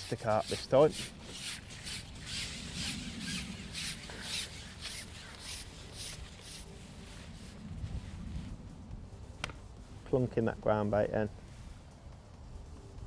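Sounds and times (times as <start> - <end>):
fishing pole rubbing swishes: 0.0 - 10.0.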